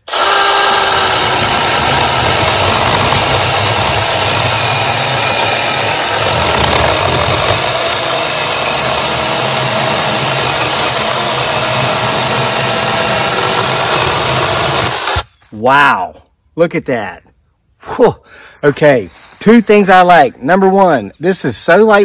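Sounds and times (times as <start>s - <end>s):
chainsaw cutting log: 0.0s - 15.3s.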